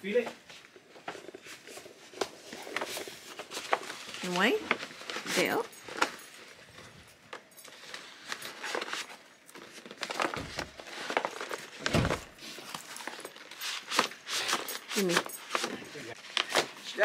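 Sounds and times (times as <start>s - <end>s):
wrapping paper crinkling: 1.0s - 17.0s.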